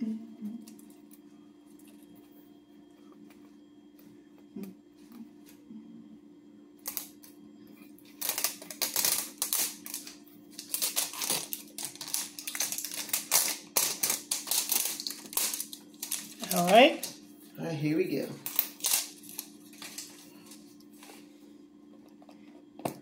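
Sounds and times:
faint low hum: 0:00.0 - 0:23.0
plastic shrink wrap crinkling: 0:08.0 - 0:17.2, 0:18.4 - 0:21.2.

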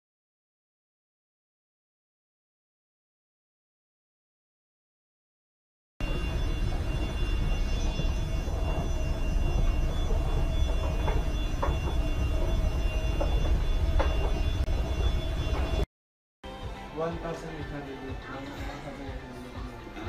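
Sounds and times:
escalator rumble and hum: 0:06.0 - 0:15.9.

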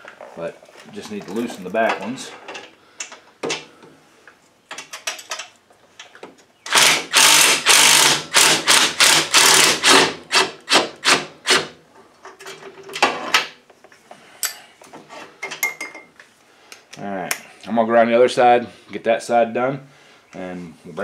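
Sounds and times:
cordless drill spinning: 0:06.7 - 0:10.1.

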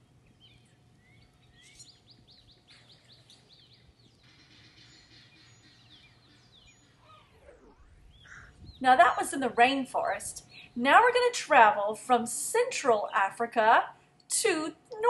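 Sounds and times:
bird chirping: 0:00.0 - 0:09.6.

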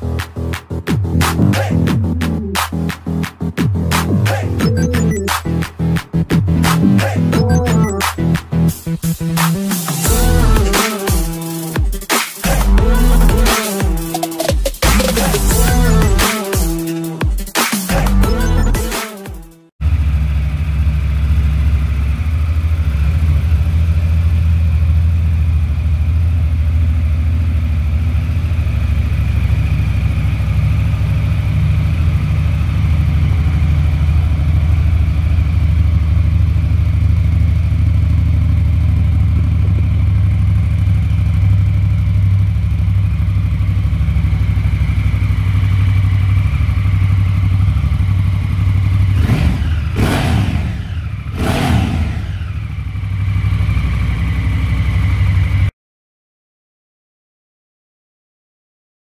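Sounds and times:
motorcycle engine idling: 0:19.8 - 0:55.7.

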